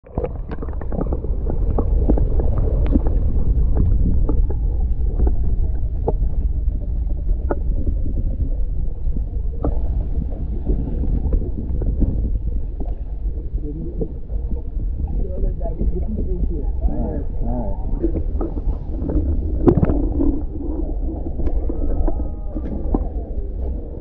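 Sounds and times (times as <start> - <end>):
small clicks and gurgles: 0.0 - 16.2, 16.8 - 24.0
deep underwater rumble: 0.0 - 24.0
faint falling tone: 19.1 - 24.0.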